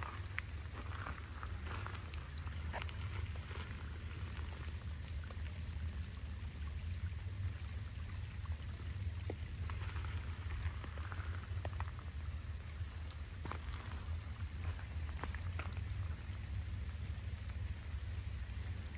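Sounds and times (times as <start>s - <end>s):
water drips: 0.0s - 18.9s
water running through drainage pipe: 0.0s - 18.9s.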